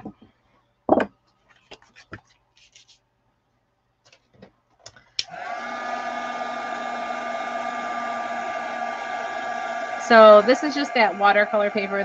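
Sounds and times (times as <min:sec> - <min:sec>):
heat tool fan running: 0:05.2 - 0:12.0.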